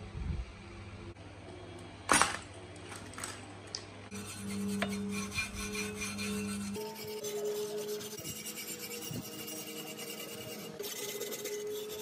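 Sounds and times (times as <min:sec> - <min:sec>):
wire brush scrubbing steel: 0:04.1 - 0:12.0.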